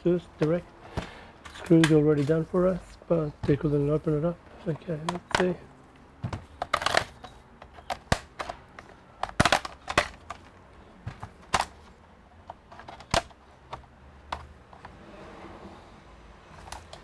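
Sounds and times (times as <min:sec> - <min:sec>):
plastic clips snapping loose: 0:06.4 - 0:10.5, 0:12.4 - 0:14.5.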